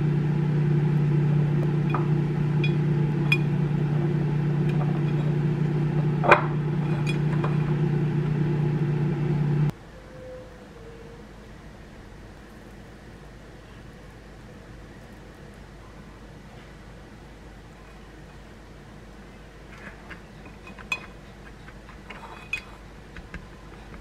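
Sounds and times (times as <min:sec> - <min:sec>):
machine hum: 0:00.0 - 0:13.6
spatula scraping ceramic plate: 0:02.0 - 0:07.8, 0:19.8 - 0:24.0.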